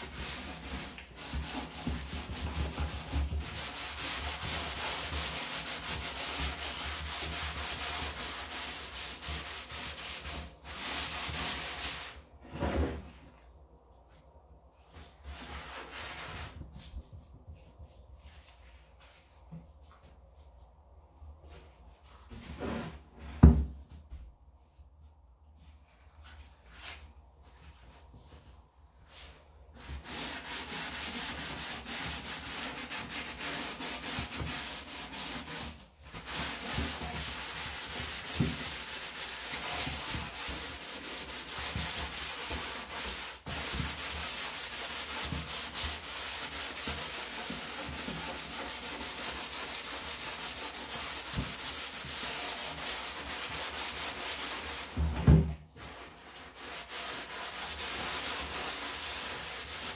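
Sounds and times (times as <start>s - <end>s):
sponge scrubbing garbage can: 0.0s - 13.1s, 29.2s - 59.9s.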